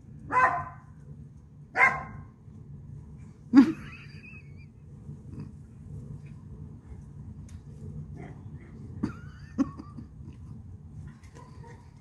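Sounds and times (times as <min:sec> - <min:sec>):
puppy barking: 0:00.3 - 0:00.8, 0:01.8 - 0:02.2, 0:11.3 - 0:11.9.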